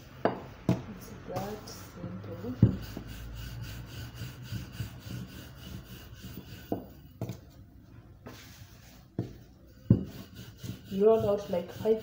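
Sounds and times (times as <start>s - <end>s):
rolling pin rubbing on dough: 0.8s - 7.6s, 8.2s - 12.0s.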